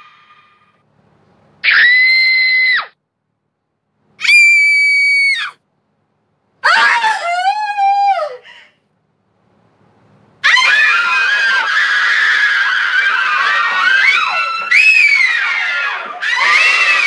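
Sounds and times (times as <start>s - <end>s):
women screaming: 1.6s - 3.0s, 4.2s - 5.6s, 6.6s - 8.4s, 10.4s - 17.0s.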